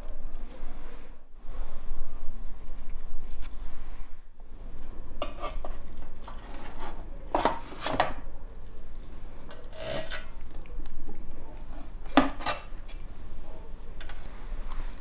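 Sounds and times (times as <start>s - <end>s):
metal utensils scraping steel pan: 5.2s - 5.7s, 9.5s - 10.4s.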